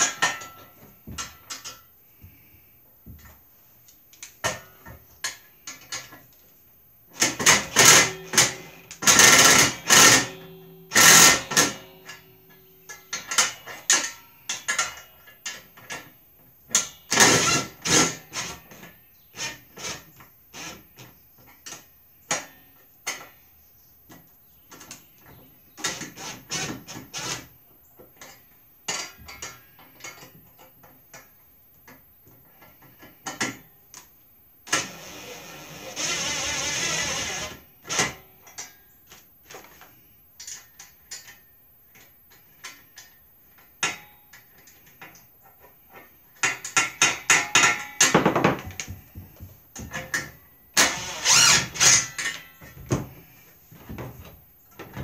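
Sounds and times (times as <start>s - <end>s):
power driver running a bolt: 7.2s - 12.2s, 34.7s - 38.2s, 50.8s - 52.2s
metal parts clattering on plastic: 51.8s - 55.0s.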